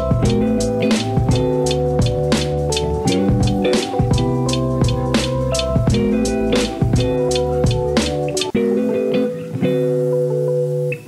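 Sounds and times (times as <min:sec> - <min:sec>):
drums and bass: 0:00.0 - 0:08.6
plucked guitar: 0:00.0 - 0:11.0.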